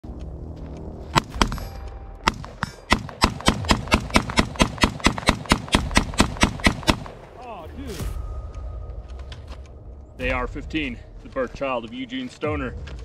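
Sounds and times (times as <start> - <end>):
rifle shots: 1.2 - 7.2.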